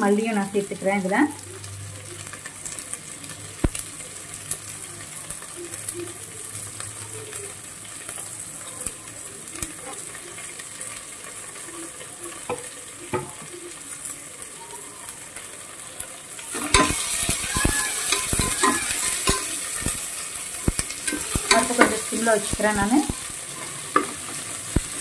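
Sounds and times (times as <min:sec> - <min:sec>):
onions sizzling in oil: 0:00.0 - 0:25.0
metal spoon scraping pot: 0:16.6 - 0:19.9, 0:20.7 - 0:22.2.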